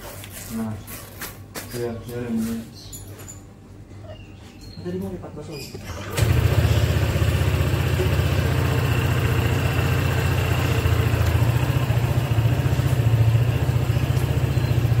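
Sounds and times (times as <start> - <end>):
scooter engine idling: 5.9 - 15.0.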